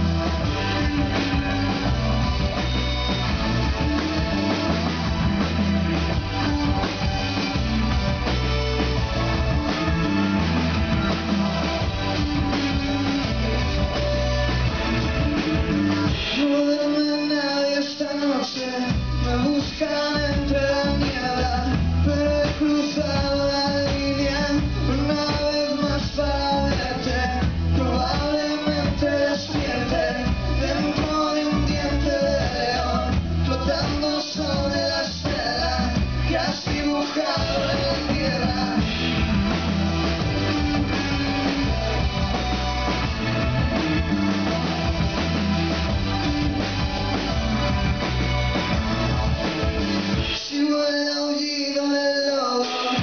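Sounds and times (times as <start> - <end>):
electric guitars: 0.0 - 50.6
bass guitar: 0.0 - 53.0
drums: 0.0 - 53.0
man singing lead vocal: 16.0 - 42.2, 50.1 - 53.0.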